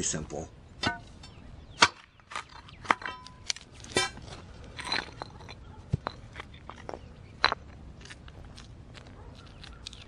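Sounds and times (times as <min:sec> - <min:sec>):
gritty concrete crunches: 0:01.8 - 0:10.0.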